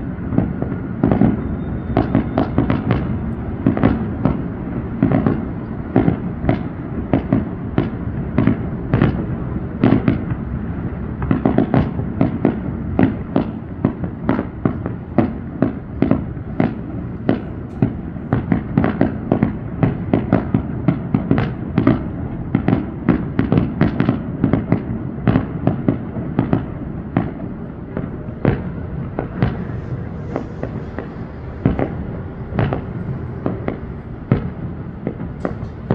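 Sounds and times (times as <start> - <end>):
fireworks bursting: 0.0 - 35.9.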